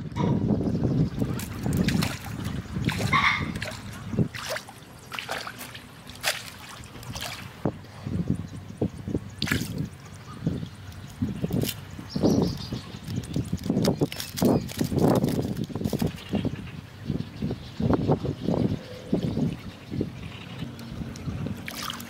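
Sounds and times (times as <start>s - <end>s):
muddy water splashing: 1.0s - 7.9s, 9.2s - 16.6s, 19.1s - 22.0s.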